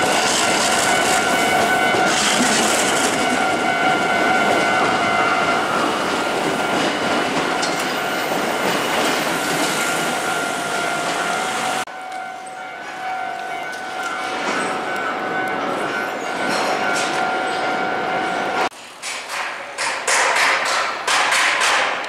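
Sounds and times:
electric train rushing past: 0:00.0 - 0:19.0
level crossing bell ringing: 0:09.9 - 0:18.7.

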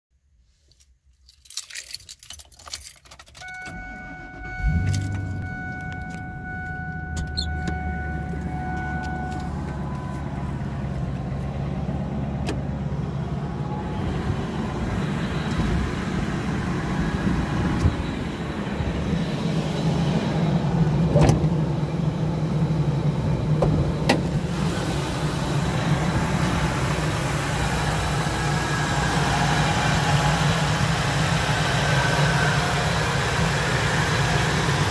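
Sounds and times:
keys jangling: 0:01.1 - 0:03.7
engine cranking and idling: 0:02.4 - 0:34.9
steady electronic tone: 0:03.6 - 0:10.6.

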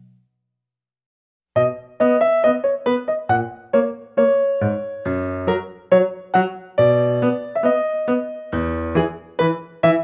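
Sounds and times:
keyboard music: 0:01.6 - 0:10.0.

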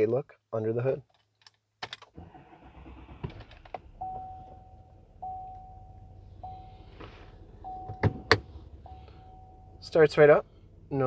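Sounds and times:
diesel engine starting and idling: 0:02.2 - 0:11.0
truck warning chime dinging: 0:04.0 - 0:06.9, 0:07.6 - 0:10.1.

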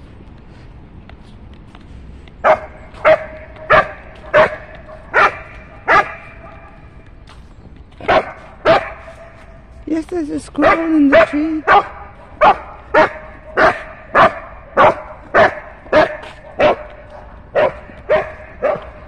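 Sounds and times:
dog barking: 0:02.4 - 0:06.8, 0:08.0 - 0:09.4, 0:10.6 - 0:19.0.

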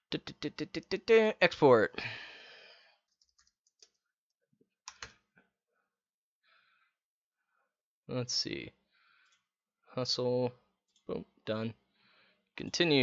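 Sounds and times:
faint keyboard typing: 0:03.1 - 0:04.0, 0:04.9 - 0:05.2.

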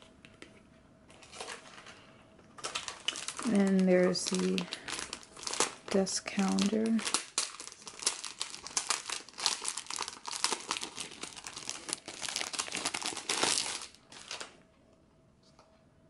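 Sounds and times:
plastic sleeve crinkling: 0:02.6 - 0:14.6.

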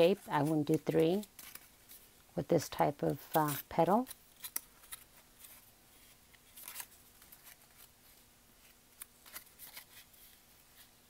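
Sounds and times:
paper rustling and scraping: 0:00.0 - 0:02.1, 0:03.1 - 0:11.0.

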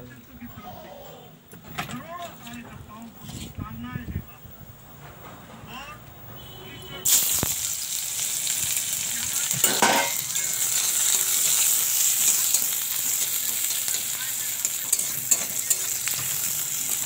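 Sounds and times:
onions sizzling in hot oil: 0:07.0 - 0:17.0.

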